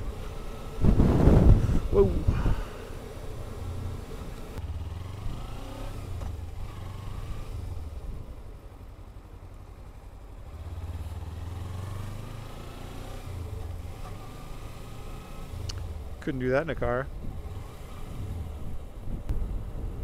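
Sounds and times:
motorcycle engine running: 0.0s - 16.2s.

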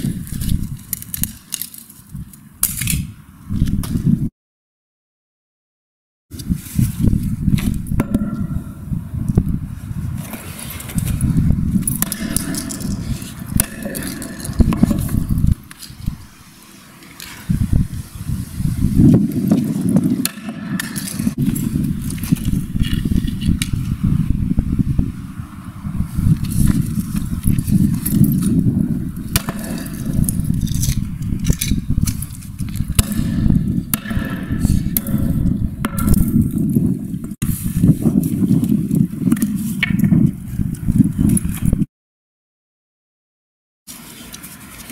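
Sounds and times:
sledgehammer striking concrete: 7.6s - 8.8s, 11.8s - 15.7s, 19.6s - 21.4s, 29.3s - 31.0s, 32.2s - 36.5s
low rumble: 21.2s - 37.4s.

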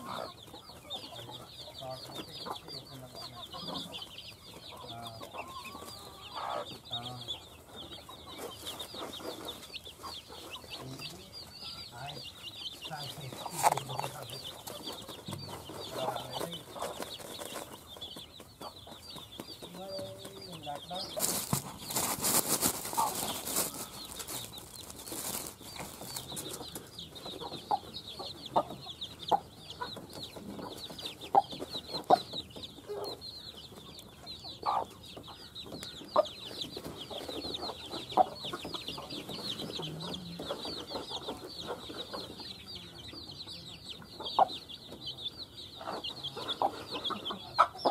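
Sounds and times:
beaks pecking on mat: 0.0s - 43.0s
chicks peeping: 0.0s - 47.9s
hen clucking: 0.0s - 47.9s
loud rustling: 21.1s - 26.6s.

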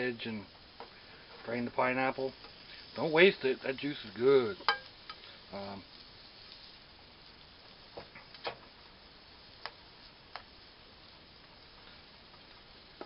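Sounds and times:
food frying in a pan: 0.0s - 13.0s.

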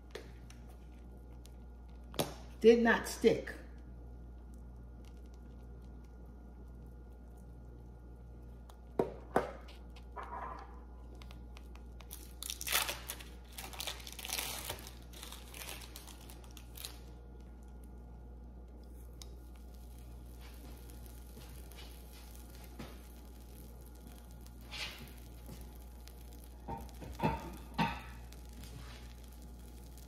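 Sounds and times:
plastic wrapper crinkling and tearing: 11.0s - 18.0s, 18.8s - 30.0s.

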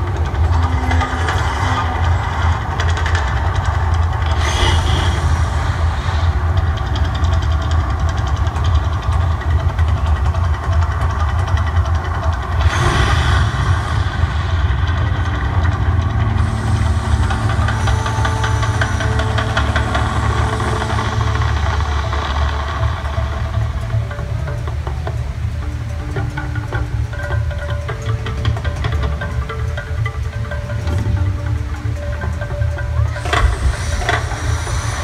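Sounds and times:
rushing surge: 0.0s - 9.3s, 12.4s - 24.2s, 33.0s - 35.0s
deep rumble with fluttering throb: 0.0s - 35.0s.

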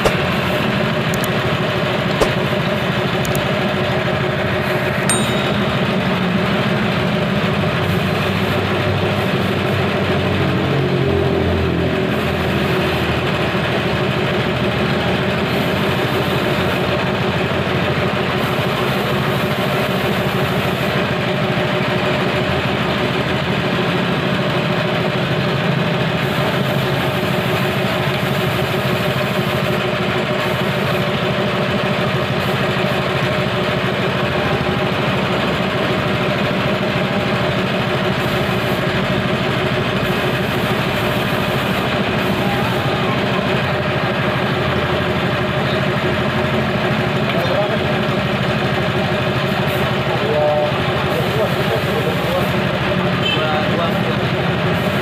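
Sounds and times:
small petrol engine running: 0.0s - 55.0s.

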